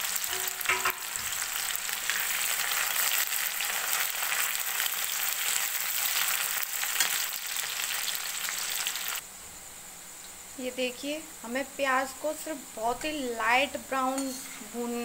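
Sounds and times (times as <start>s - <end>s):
onions sizzling in hot oil: 0.0s - 9.2s
metal ladle stirring: 0.3s - 1.2s.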